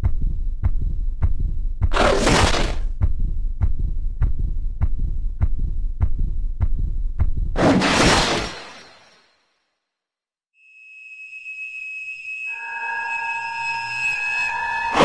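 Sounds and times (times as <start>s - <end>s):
low thumping pulse: 0.0s - 7.6s.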